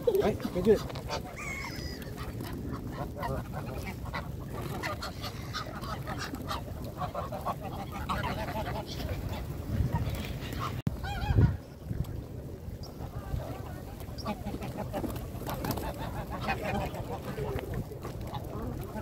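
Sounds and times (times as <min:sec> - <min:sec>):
geese honking: 0:00.2 - 0:09.5, 0:14.0 - 0:17.6.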